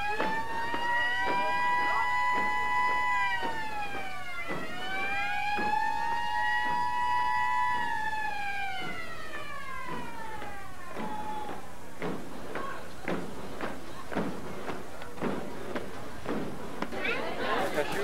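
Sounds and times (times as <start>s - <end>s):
siren wailing: 0.0s - 11.8s.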